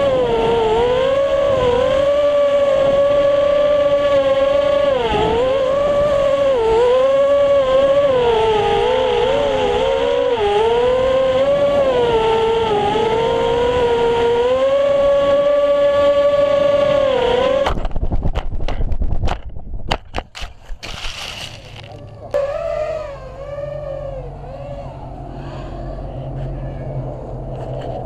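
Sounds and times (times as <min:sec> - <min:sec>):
quadcopter motors whining: 0:00.0 - 0:18.0, 0:20.6 - 0:28.0.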